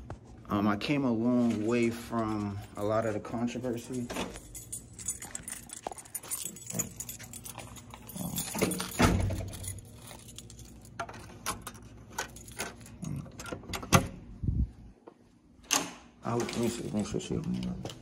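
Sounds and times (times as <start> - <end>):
keys jangling: 2.2 - 13.6.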